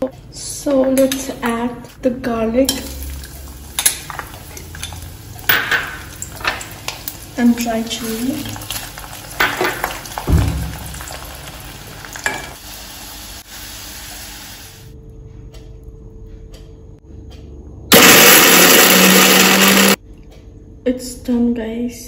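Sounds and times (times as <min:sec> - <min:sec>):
garlic and chilies sizzling in oil: 0:02.6 - 0:15.0
electric mixer grinder running: 0:17.9 - 0:20.0.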